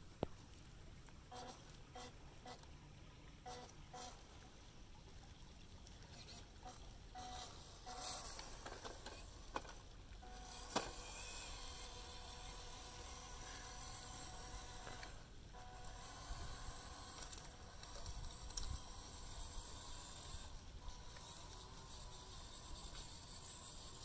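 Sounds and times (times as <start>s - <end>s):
electric motor whir: 6.2s - 24.0s.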